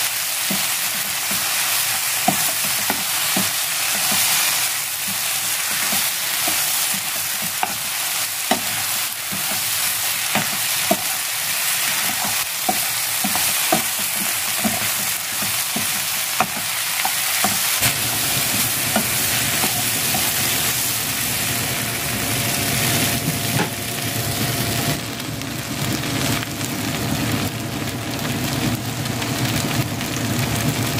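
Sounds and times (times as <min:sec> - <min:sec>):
food sizzling in a frying pan: 0:00.0 - 0:30.9
spatula scraping a pan: 0:00.5 - 0:21.0.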